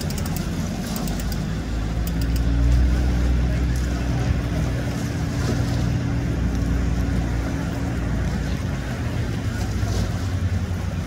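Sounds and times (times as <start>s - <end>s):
motorboat engine droning: 0.0s - 11.0s
water wash: 0.0s - 11.0s.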